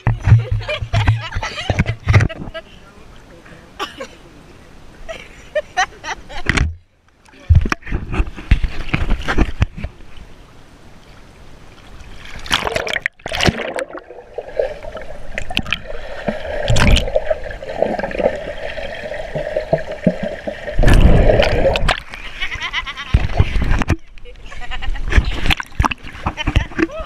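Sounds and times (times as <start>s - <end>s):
water splashing: 11.0s - 24.4s, 25.1s - 27.0s.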